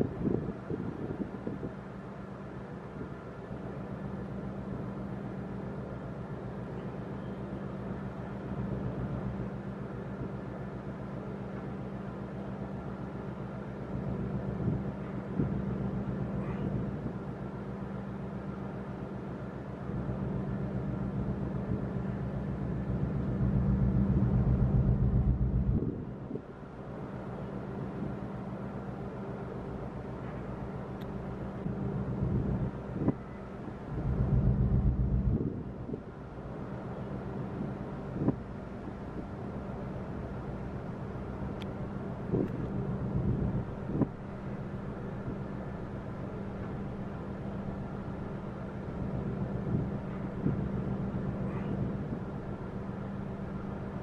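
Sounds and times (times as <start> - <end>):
wind on microphone: 0.0 - 1.8, 14.6 - 15.7, 23.3 - 26.5, 31.7 - 36.1, 37.4 - 39.3, 42.2 - 44.2, 49.0 - 52.4
low engine drone: 0.0 - 54.0.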